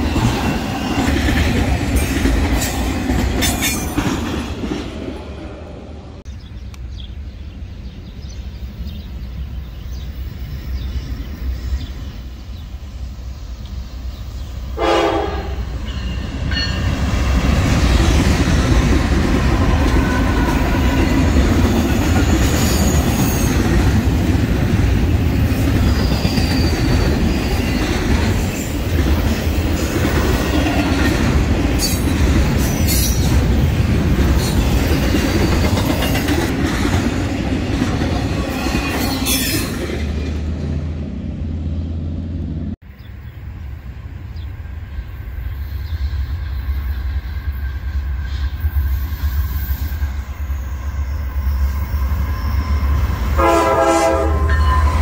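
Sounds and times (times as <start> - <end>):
diesel locomotive engines: 0.0 - 55.0
freight train rumbling: 0.0 - 55.0
train horn blast: 14.8 - 15.8, 53.4 - 55.0.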